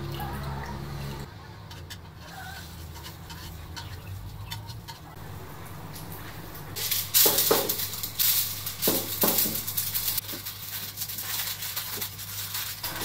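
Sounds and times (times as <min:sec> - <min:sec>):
low steady hum: 0:05.2 - 0:11.1
aluminium foil crinkling: 0:06.8 - 0:13.0.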